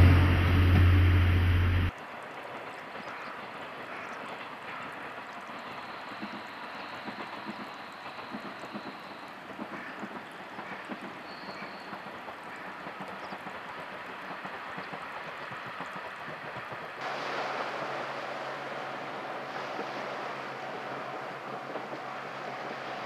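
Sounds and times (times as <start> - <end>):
low steady hum: 0.0 - 1.9
distant train running: 0.0 - 23.0.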